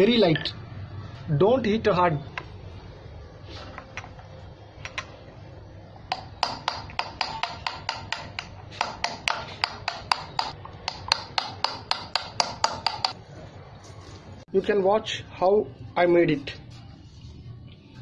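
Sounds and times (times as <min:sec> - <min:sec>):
hammer tapping metal punch: 0:06.1 - 0:13.2.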